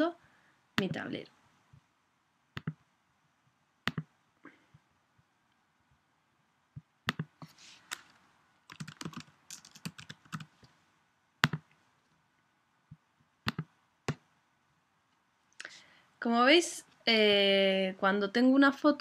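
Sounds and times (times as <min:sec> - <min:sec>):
mouse button clicks: 0:02.6 - 0:02.8, 0:03.9 - 0:04.1
computer keyboard typing: 0:03.9 - 0:04.1, 0:07.1 - 0:07.3, 0:08.7 - 0:10.5, 0:11.4 - 0:11.7, 0:13.5 - 0:14.2.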